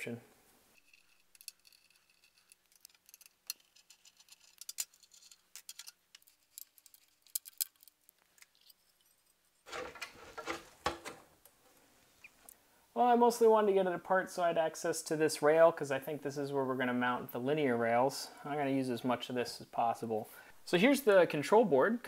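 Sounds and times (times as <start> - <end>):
rustling and scraping of frame: 0.5 - 12.5
small metallic clicks and ticks: 0.8 - 9.5.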